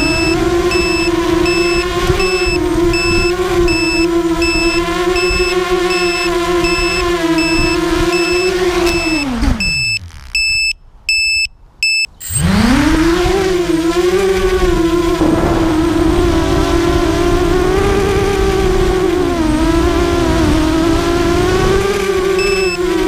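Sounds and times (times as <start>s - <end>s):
drone motors whining: 0.0s - 11.2s, 12.0s - 23.0s
high beep: 0.0s - 12.4s, 22.4s - 22.8s.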